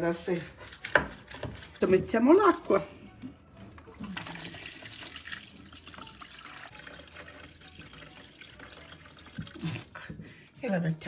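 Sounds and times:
tap water pouring into metal pot: 4.0s - 10.1s.

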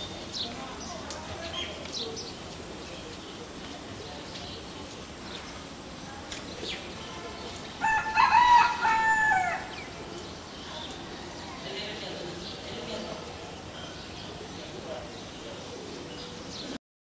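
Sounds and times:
rooster crowing: 7.8s - 10.0s.

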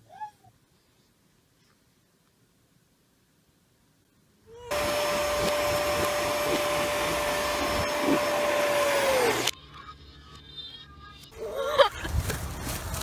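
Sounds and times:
electric motor whine reversed: 4.7s - 9.6s.

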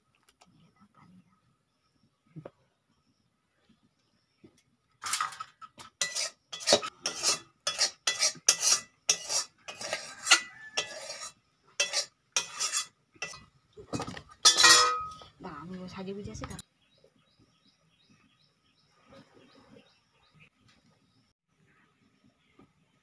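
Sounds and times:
metal spoon scraping a pan: 5.0s - 13.5s, 14.4s - 15.2s.

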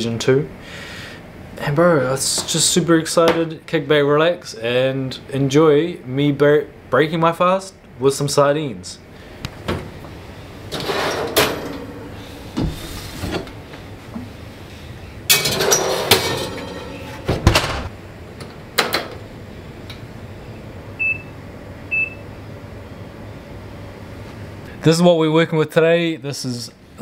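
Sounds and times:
oven door knocked shut: 17.2s - 17.9s
short oven beeps: 21.0s - 22.3s.

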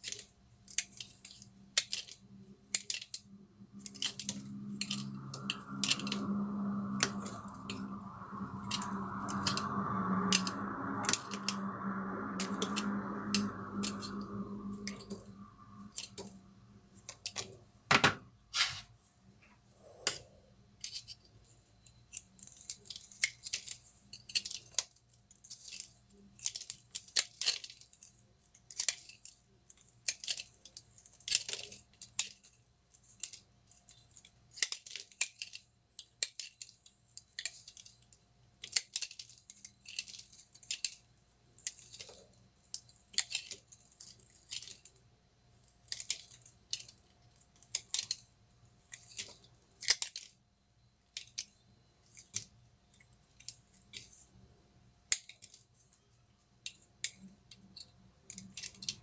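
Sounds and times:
dry soap crackling and snapping: 0.0s - 3.2s, 22.1s - 45.0s, 45.6s - 50.4s, 55.1s - 55.7s.

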